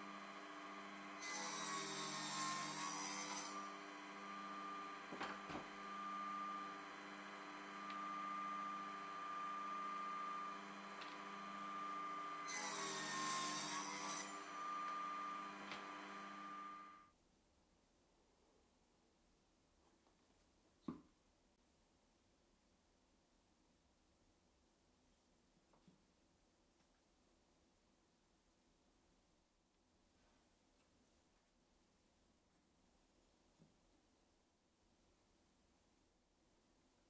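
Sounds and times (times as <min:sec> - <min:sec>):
table saw whining: 0:00.0 - 0:17.0
saw cutting through board: 0:00.6 - 0:17.0.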